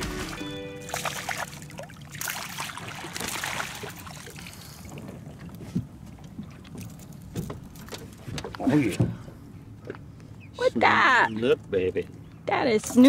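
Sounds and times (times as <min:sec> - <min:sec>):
water splashing against boat: 0:00.0 - 0:10.1.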